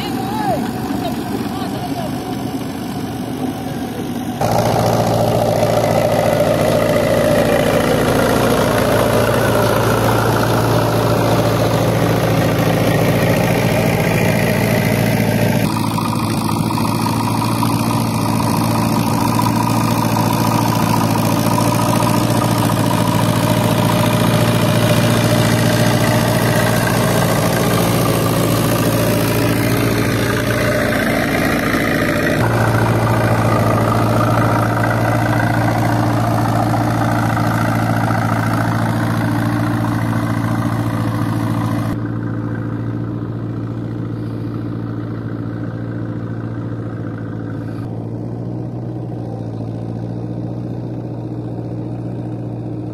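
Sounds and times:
road roller engine running: 0:00.0 - 0:52.9
roller compacting gravel: 0:00.0 - 0:52.9.

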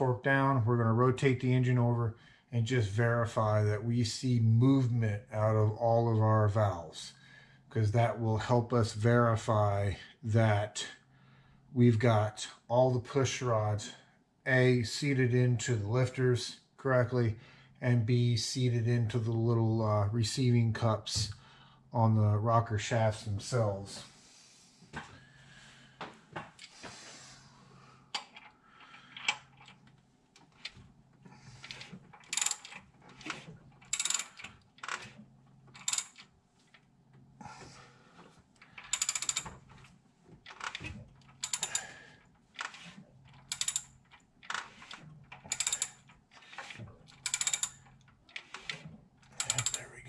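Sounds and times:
ratchet wrench clicking: 0:32.3 - 0:35.2, 0:35.8 - 0:36.2, 0:38.8 - 0:39.5, 0:41.4 - 0:42.0, 0:43.5 - 0:43.9, 0:44.5 - 0:46.0, 0:47.2 - 0:48.8, 0:49.4 - 0:49.8.

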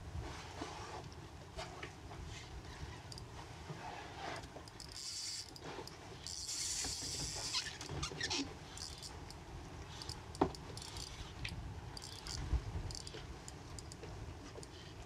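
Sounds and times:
spinning reel whirring: 0:04.4 - 0:05.6, 0:06.2 - 0:11.4, 0:12.0 - 0:13.2
fishing reel clicks: 0:04.7 - 0:05.6, 0:06.2 - 0:14.0.

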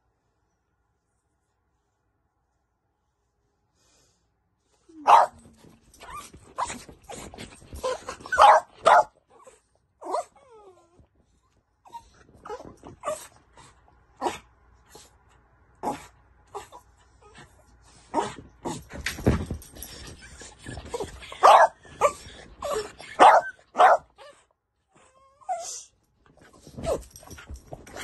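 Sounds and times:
small dogs barking excitedly: 0:05.0 - 0:10.4, 0:20.8 - 0:24.3.

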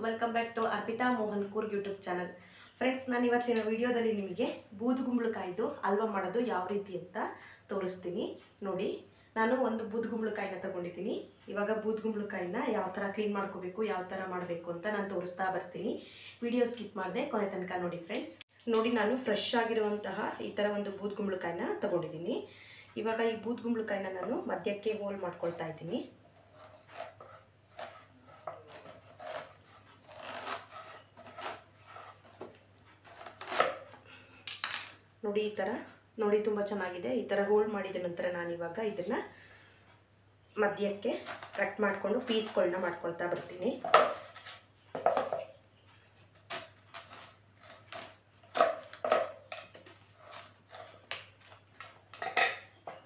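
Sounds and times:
knife sawing through gourd rind: 0:26.4 - 0:32.4, 0:33.0 - 0:33.9, 0:49.8 - 0:51.1.

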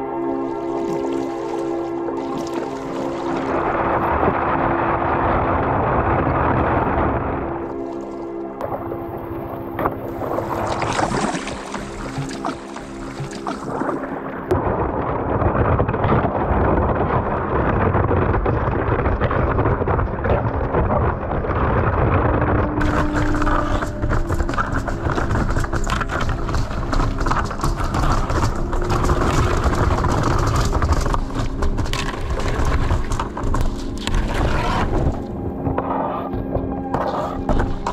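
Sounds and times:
thin ice crackling and crunching: 0:16.6 - 0:37.9
sharp ice cracks: 0:18.5 - 0:35.9.

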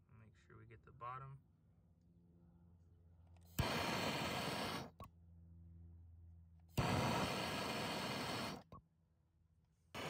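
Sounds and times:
gas torch flame hissing: 0:03.5 - 0:05.0, 0:06.7 - 0:08.7.

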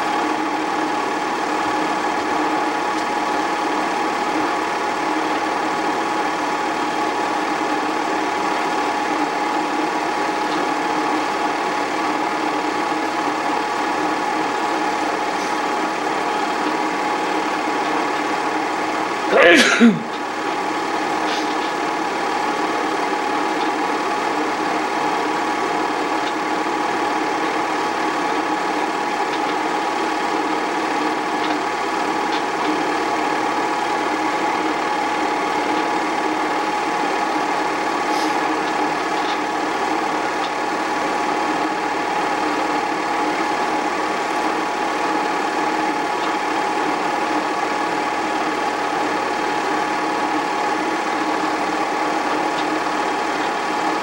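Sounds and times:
film projector running: 0:00.0 - 0:54.0.

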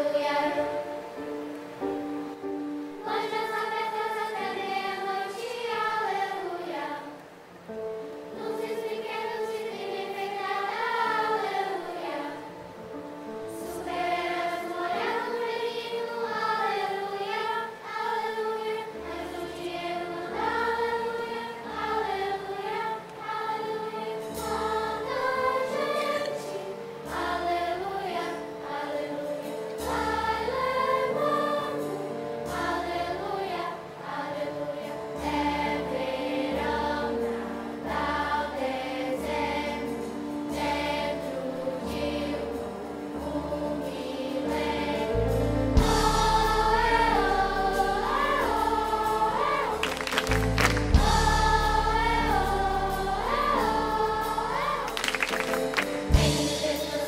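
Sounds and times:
children's choir singing: 0:00.0 - 0:57.0
instrumental accompaniment: 0:35.2 - 0:57.0
low bass notes: 0:50.3 - 0:52.7.

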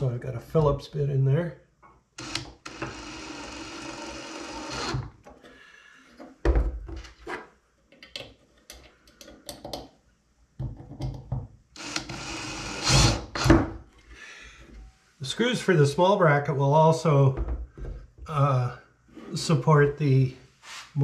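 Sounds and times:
cordless drill driving screws: 0:02.2 - 0:05.1, 0:11.8 - 0:13.6.

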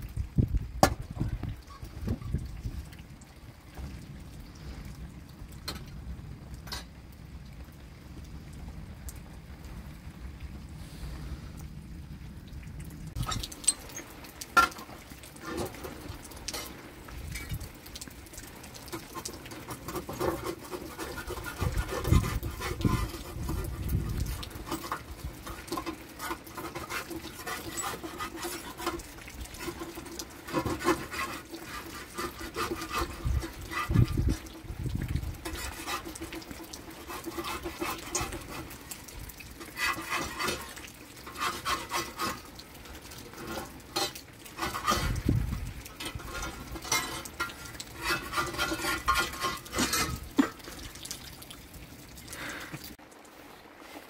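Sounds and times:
wood fire crackling: 0:00.0 - 0:54.0
metal spatula scraping and tapping: 0:16.5 - 0:16.8, 0:18.8 - 0:23.7, 0:24.6 - 0:34.6, 0:35.4 - 0:38.8, 0:39.6 - 0:42.5, 0:43.3 - 0:45.2, 0:46.0 - 0:50.7.

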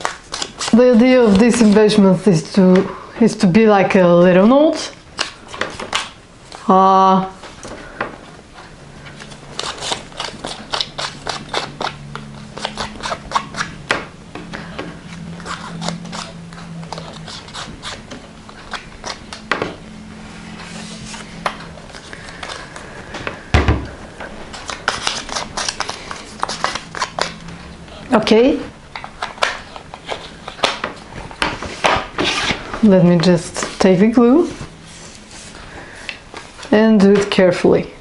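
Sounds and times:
thump on table: 0:23.5 - 0:23.9.

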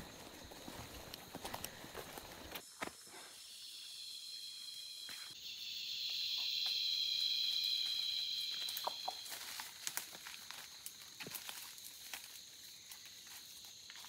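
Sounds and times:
insects buzzing chorus: 0:00.0 - 0:14.0
leaf litter snaps and rustles: 0:09.3 - 0:12.4.

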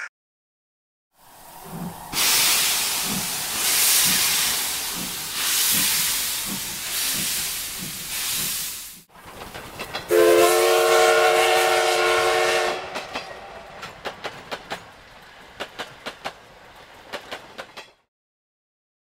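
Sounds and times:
train wheels clacking on rails: 0:01.6 - 0:11.1, 0:12.3 - 0:18.0
steam train whistle: 0:02.1 - 0:04.6, 0:10.1 - 0:13.2.

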